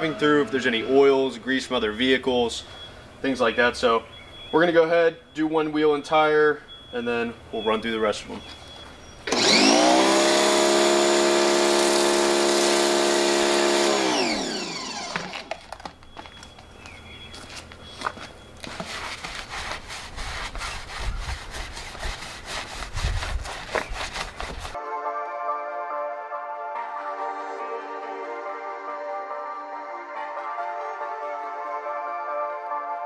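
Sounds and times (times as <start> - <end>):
pressure washer motor whine: 9.2 - 15.7
brush scrubbing tire: 18.6 - 24.8.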